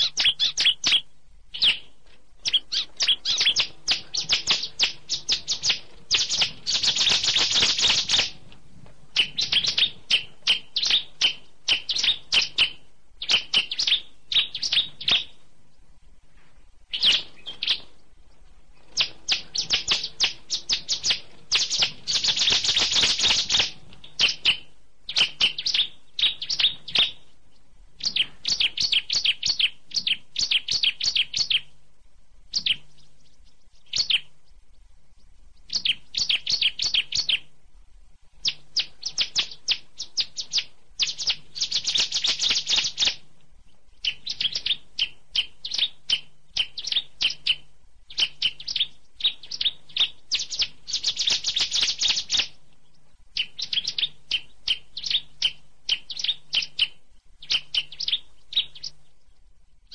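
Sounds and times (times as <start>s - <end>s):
songbird singing chattering phrases: 0.0s - 8.4s, 9.1s - 15.4s, 16.9s - 17.9s, 18.9s - 31.8s, 32.5s - 37.5s, 38.4s - 59.9s.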